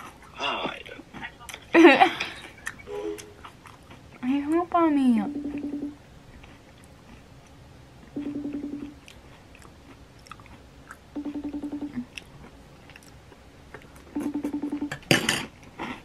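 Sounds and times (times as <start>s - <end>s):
phone buzzing: 5.2s - 6.0s, 8.2s - 9.0s, 11.2s - 12.0s, 14.1s - 15.1s.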